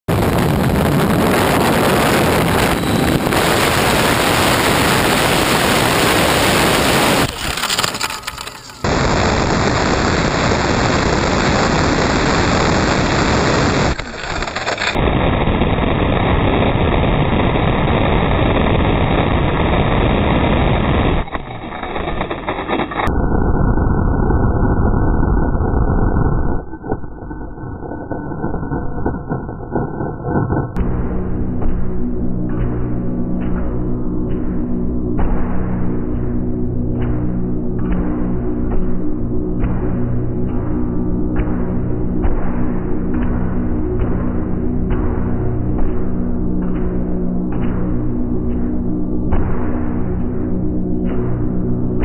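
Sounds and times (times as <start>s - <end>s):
slowed-down deep jet sound: 0.0s - 52.0s.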